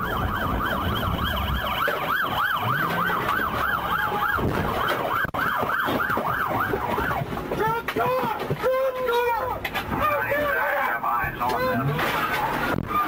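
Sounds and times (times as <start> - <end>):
police siren yelping: 0.0 - 7.8
engine and road rumble: 0.0 - 13.0.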